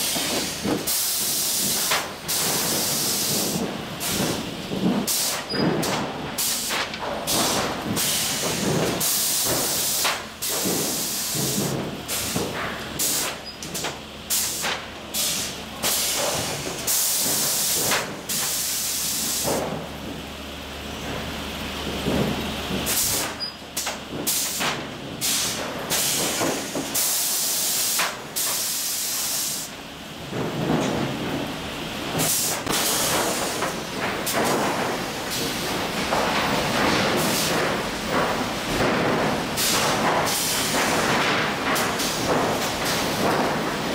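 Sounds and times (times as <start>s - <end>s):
hissing bursts of air: 0.0s - 19.7s, 22.8s - 29.8s, 32.0s - 43.9s
boards and steel clattering: 30.3s - 31.5s, 32.1s - 43.9s.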